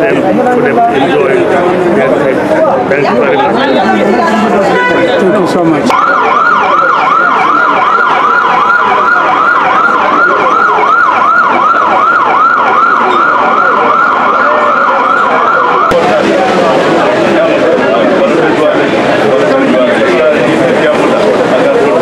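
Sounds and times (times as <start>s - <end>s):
street noise: 0.0s - 22.0s
siren yelping: 5.9s - 16.0s.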